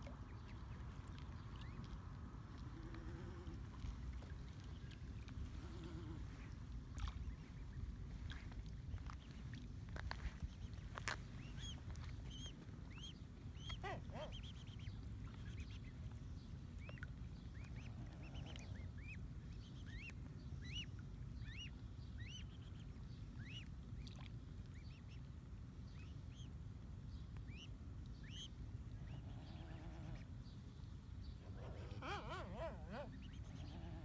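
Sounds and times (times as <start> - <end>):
low background rumble: 0.0 - 34.0
swan cygnets peeping: 10.4 - 16.0.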